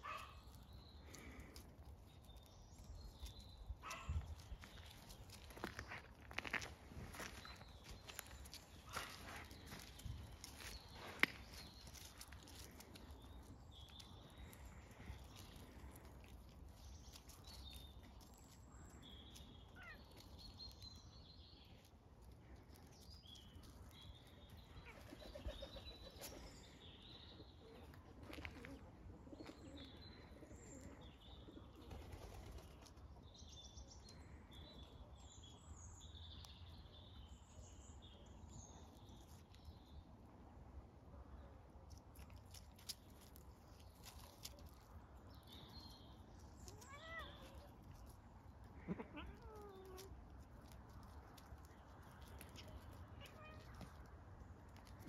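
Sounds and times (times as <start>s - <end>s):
small birds chirping: 0.0s - 40.6s, 41.2s - 55.0s.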